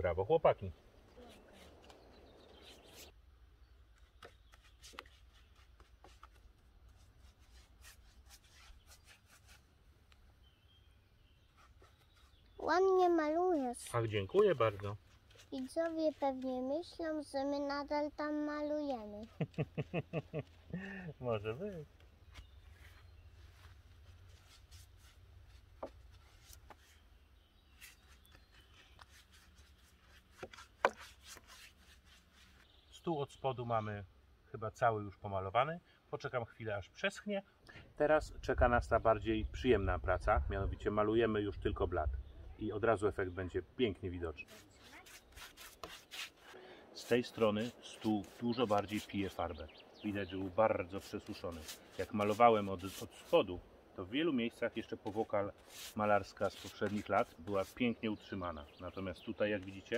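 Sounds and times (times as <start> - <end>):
paintbrush clicks and scrapes: 3.9 - 10.2, 11.4 - 12.6, 13.6 - 17.0, 22.2 - 32.8, 44.4 - 49.5, 50.1 - 53.5, 54.8 - 58.1.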